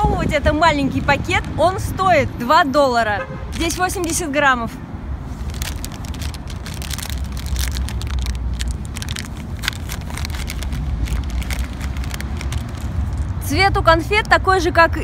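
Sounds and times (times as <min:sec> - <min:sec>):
plastic candy bag crinkling: 0:03.5 - 0:04.2, 0:05.3 - 0:13.4
steady low rumble: 0:05.1 - 0:14.1.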